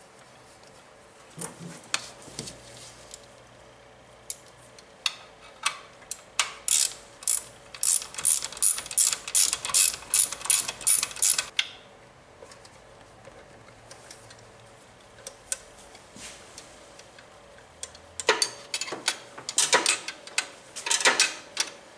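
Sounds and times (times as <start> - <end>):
ratchet wrench clicking: 6.4 - 11.6.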